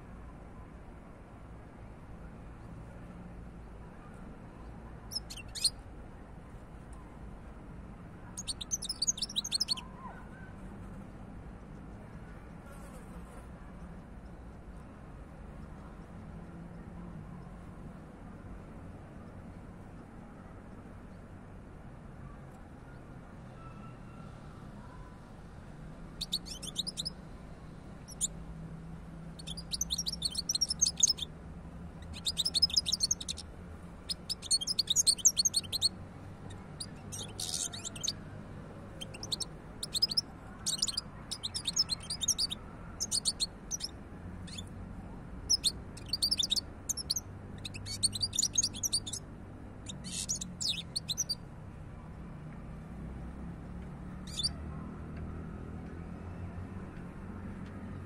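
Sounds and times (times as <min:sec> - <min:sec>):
goldfinch twittering song: 0:05.1 - 0:05.8, 0:08.4 - 0:09.9, 0:26.2 - 0:27.2, 0:28.1 - 0:28.3, 0:29.4 - 0:31.3, 0:32.0 - 0:33.4, 0:34.1 - 0:38.2, 0:39.0 - 0:44.6, 0:45.5 - 0:49.2, 0:49.8 - 0:51.4, 0:54.3 - 0:54.6.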